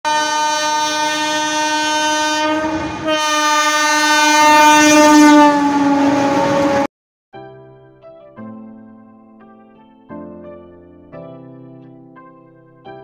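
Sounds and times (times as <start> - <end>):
locomotive air horn blasts: 0.1 - 6.9.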